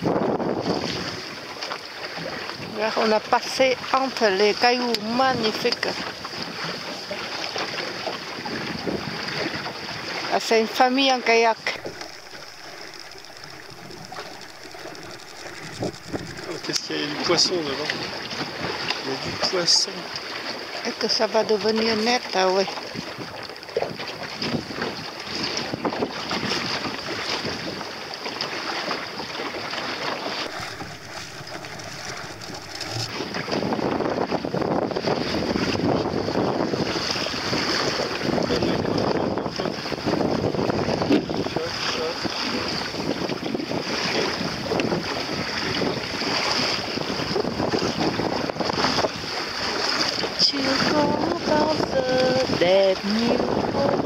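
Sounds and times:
wind buffeting the microphone: 0:00.0 - 0:01.4, 0:30.5 - 0:54.0
water washing along a hull: 0:00.0 - 0:54.0.

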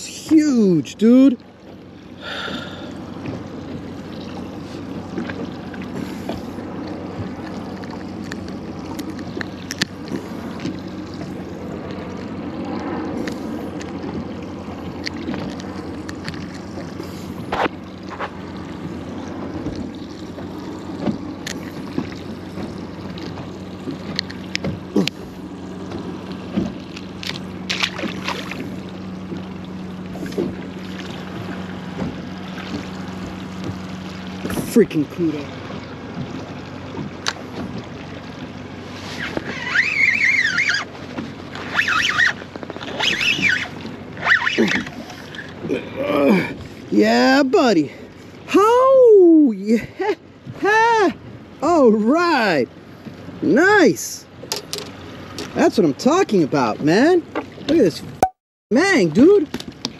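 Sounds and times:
water lapping at boat hull: 0:00.0 - 0:59.9
clicks and knocks from handling tackle: 0:54.4 - 0:55.6.

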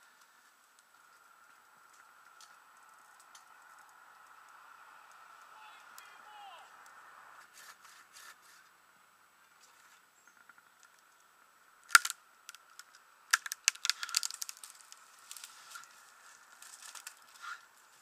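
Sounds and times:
dry twigs crackling: 0:00.0 - 0:18.0
branches snapping: 0:00.2 - 0:06.1, 0:09.6 - 0:18.0.

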